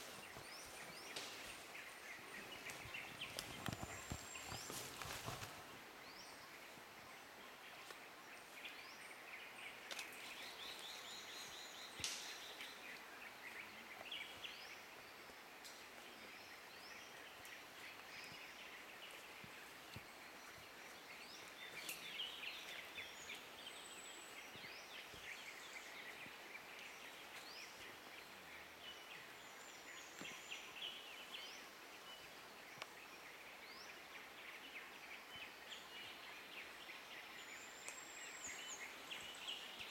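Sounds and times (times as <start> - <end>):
birds chirping and trilling: 0.0 - 39.9.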